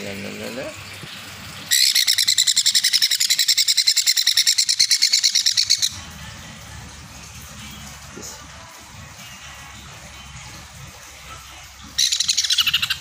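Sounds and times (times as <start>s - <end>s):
parrot chick pulsed begging chirps: 1.7s - 6.0s, 12.0s - 13.0s.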